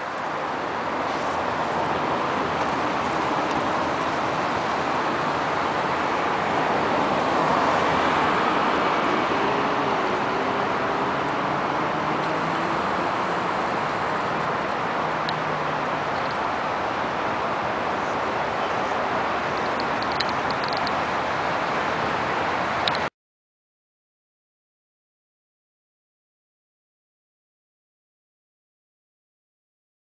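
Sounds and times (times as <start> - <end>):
road traffic noise: 0.0 - 23.1.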